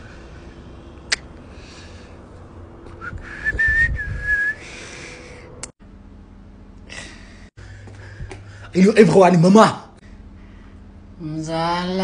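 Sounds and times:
person whistling high note: 0:03.0 - 0:04.6.

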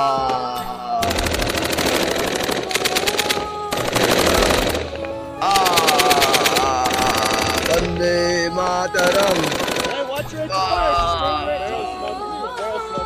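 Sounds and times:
automatic gunfire: 0:01.0 - 0:08.0, 0:09.0 - 0:10.2.

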